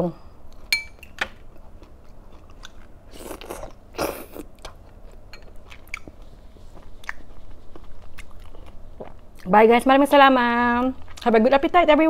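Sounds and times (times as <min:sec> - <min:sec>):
person chewing food: 0:01.5 - 0:09.5.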